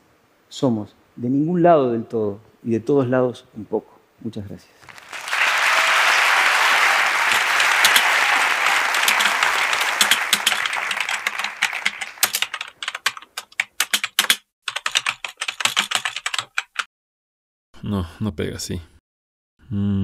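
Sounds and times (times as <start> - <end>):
audience applause: 4.8 - 13.2
keyboard typing clicks: 7.8 - 8.0, 9.0 - 9.4, 10.0 - 16.9.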